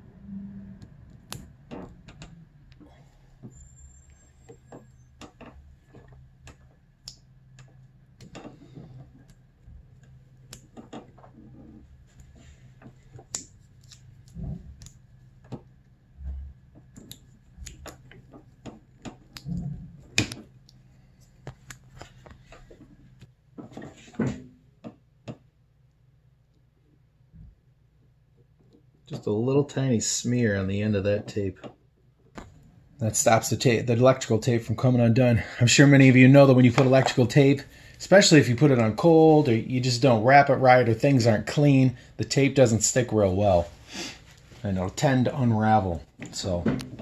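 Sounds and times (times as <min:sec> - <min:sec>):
hands handling tape: 0:05.2 - 0:15.7.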